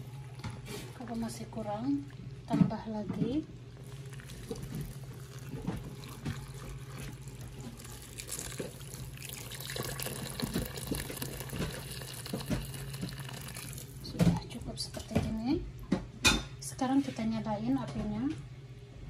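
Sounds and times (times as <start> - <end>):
water pouring into pot: 3.8 - 14.0.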